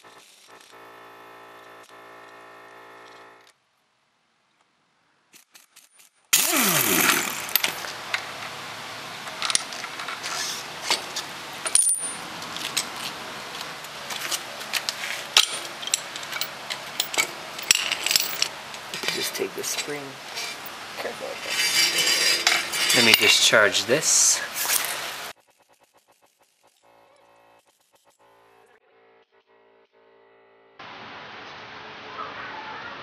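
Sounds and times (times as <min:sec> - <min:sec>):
steel tools clinking on metal: 0:14.2 - 0:20.7, 0:21.3 - 0:25.0.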